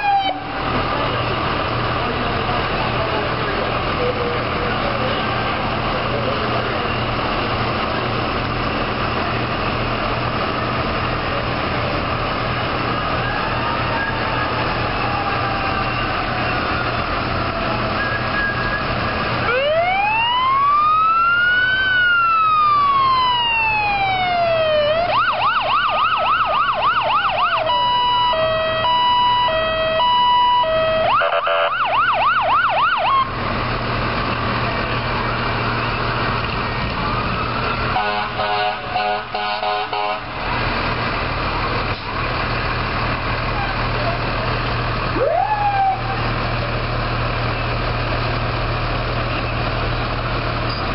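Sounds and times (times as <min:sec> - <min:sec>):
fire truck siren: 0:00.0 - 0:50.4
heavy truck engines and tyres: 0:00.0 - 0:50.9.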